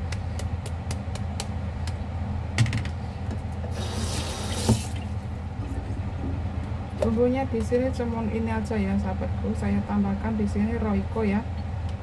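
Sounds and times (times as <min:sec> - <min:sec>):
steady low hum: 0:00.0 - 0:12.0
kitchen tap running: 0:03.7 - 0:05.8.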